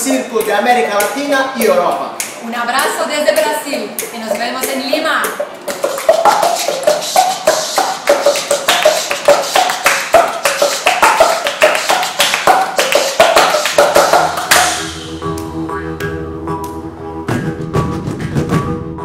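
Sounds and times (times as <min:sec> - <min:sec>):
chest slaps and hand claps: 0:00.4 - 0:16.8
low bowed-string notes: 0:14.8 - 0:17.9.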